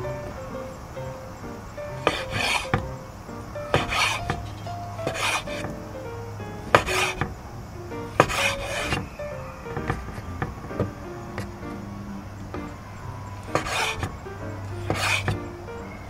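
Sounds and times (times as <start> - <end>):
background music: 0.0 - 16.0
knife cutting on a board: 3.8 - 4.4.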